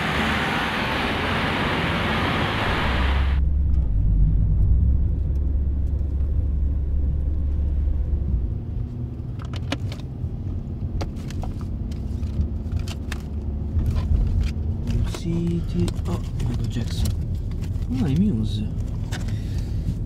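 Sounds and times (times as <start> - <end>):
car engine and road rumble: 0.0 - 20.0.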